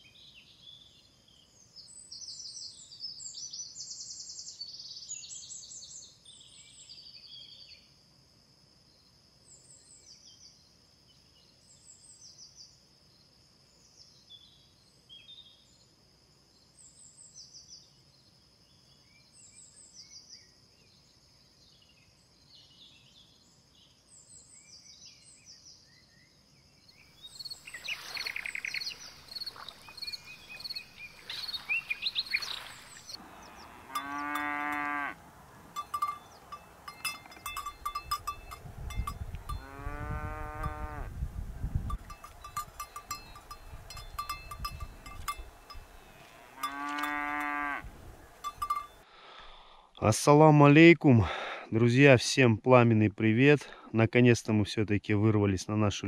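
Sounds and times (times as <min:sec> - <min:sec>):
birds chirping and calling: 0:27.2 - 0:49.0
rasping bird call: 0:27.6 - 0:41.2.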